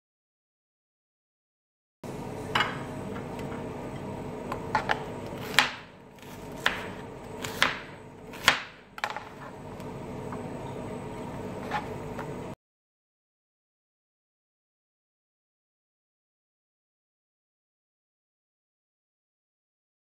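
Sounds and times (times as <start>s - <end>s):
steady low hum: 2.0s - 12.6s.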